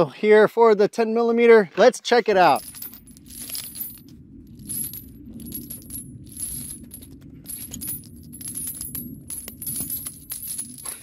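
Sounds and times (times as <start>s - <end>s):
brass casings clinking: 2.5s - 11.0s
low steady drone: 2.6s - 11.0s.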